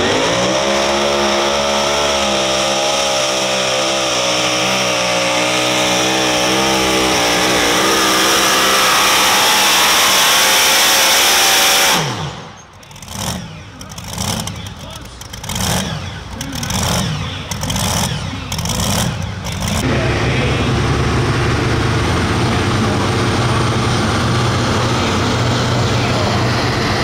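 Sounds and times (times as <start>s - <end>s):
pulling truck engine revving: 0.0s - 27.0s.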